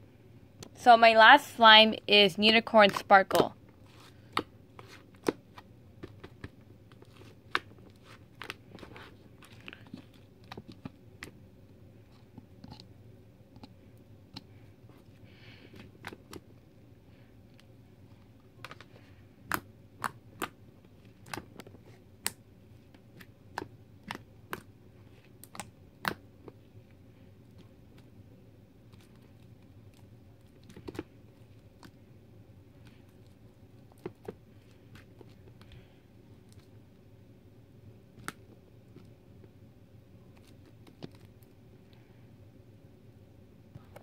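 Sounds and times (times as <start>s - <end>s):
slime squishing and popping: 19.4s - 22.4s.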